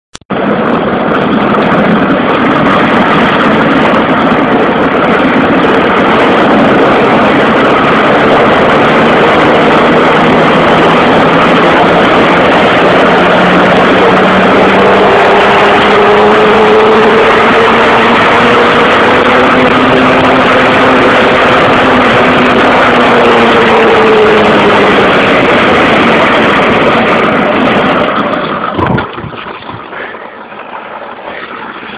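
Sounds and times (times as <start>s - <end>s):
plastic wheels rolling on ground: 25.1s - 31.9s.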